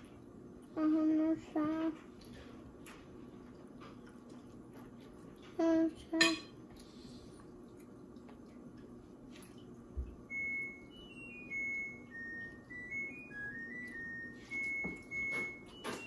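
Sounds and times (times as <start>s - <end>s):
slow tune of high pure notes: 10.3s - 16.0s.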